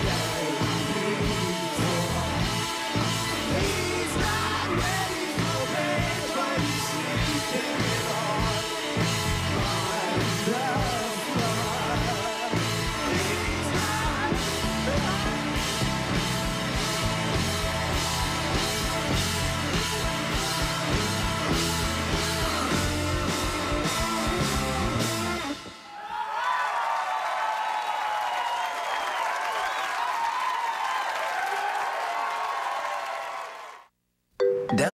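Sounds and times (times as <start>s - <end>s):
man singing: 0.0s - 16.3s
rock band playing live: 0.0s - 25.9s.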